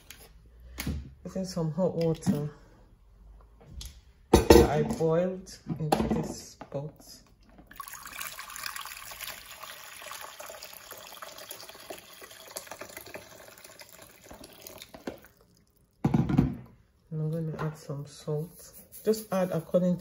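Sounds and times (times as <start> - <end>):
water pouring into a pot: 7.7 - 16.0.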